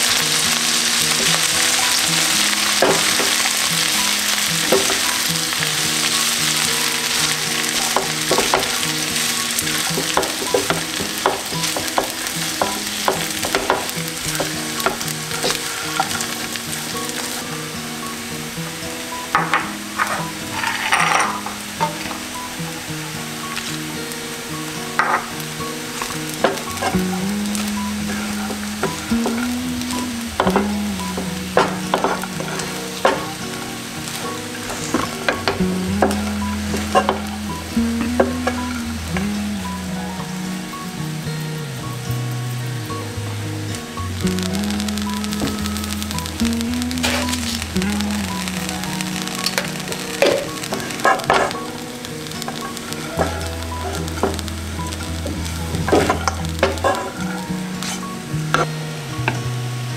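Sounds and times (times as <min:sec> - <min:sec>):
food frying: 0:00.0 - 0:59.9
light sizzle: 0:00.0 - 0:59.9
soft background music: 0:00.0 - 0:59.9
spatula scraping frying pan: 0:20.0 - 0:22.2, 0:52.4 - 0:58.1.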